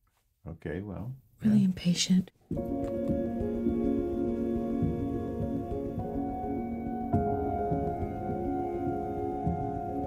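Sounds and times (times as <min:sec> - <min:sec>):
soft ambient instrumental music: 0:02.5 - 0:10.0.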